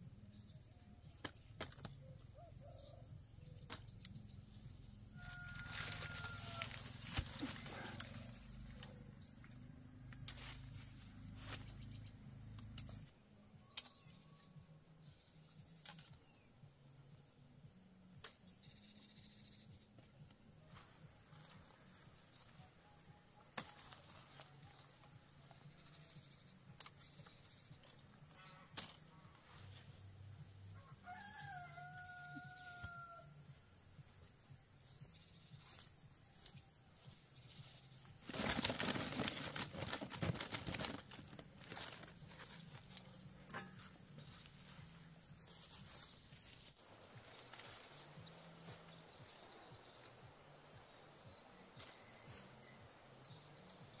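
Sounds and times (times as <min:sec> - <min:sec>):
rooster crowing: 0:05.1 - 0:07.0, 0:30.8 - 0:33.4.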